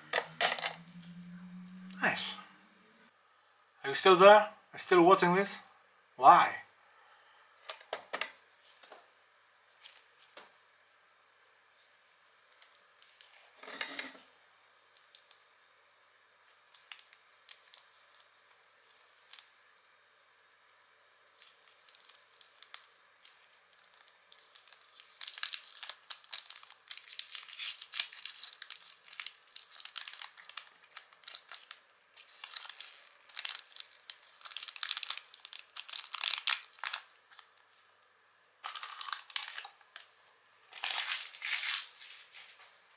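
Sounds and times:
foil wrapper crinkling: 16.5 - 20.0, 21.3 - 37.6, 38.6 - 42.7.

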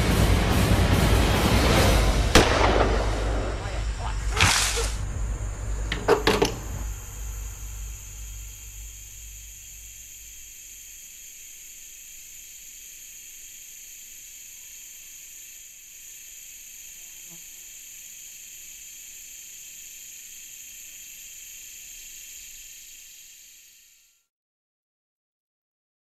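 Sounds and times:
low rumble: 0.0 - 9.4
high-pitched hiss and buzz: 0.0 - 24.3.

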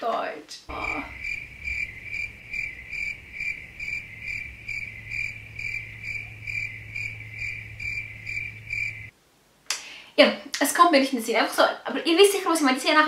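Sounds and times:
cricket chirping: 0.7 - 9.1.

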